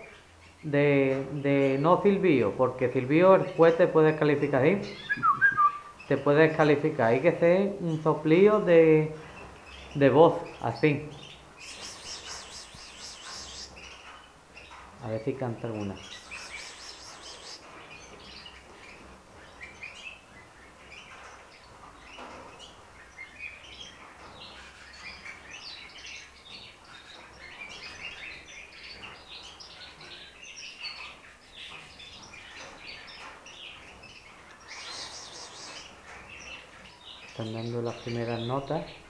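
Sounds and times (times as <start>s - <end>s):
canaries chirping: 0.0s - 39.0s
short hiss: 11.6s - 13.7s.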